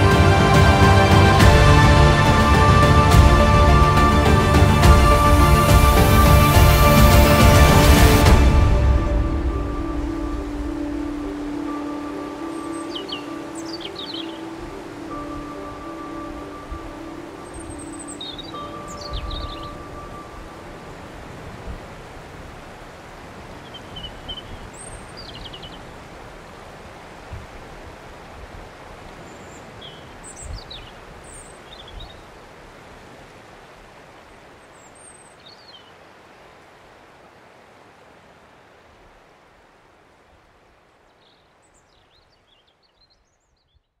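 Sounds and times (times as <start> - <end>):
steady rushing hiss: 0.0 - 23.6
high bird chirps: 12.5 - 14.6, 17.4 - 20.0.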